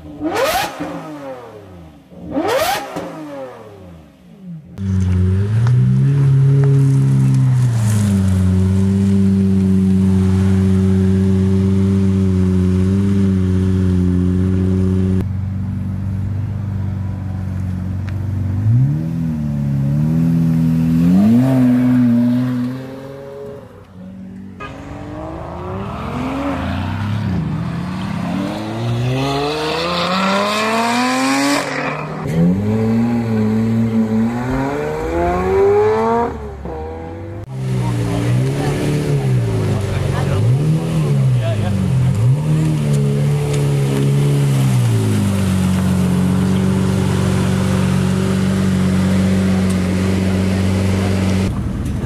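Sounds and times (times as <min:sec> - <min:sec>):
car engine revving: 0:00.0 - 0:52.0
car engine idling: 0:04.2 - 0:21.3, 0:37.4 - 0:52.0
car accelerating through gears: 0:24.6 - 0:51.5.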